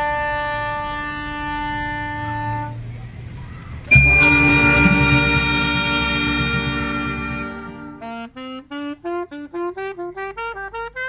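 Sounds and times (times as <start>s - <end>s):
high held note: 3.9s - 8.1s
wind band sustained chord: 3.9s - 8.1s.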